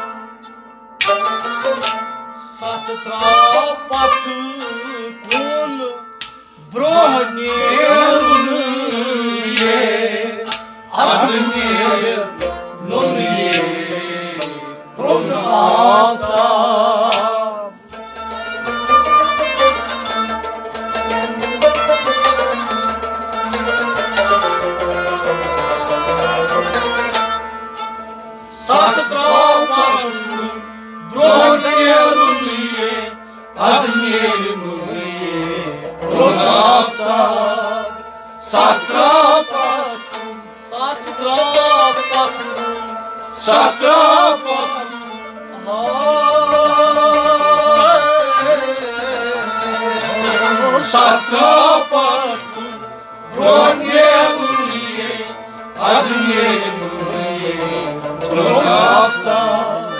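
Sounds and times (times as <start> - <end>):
man singing: 2.4 - 17.9, 28.6 - 59.9
instruments playing: 5.3 - 59.9.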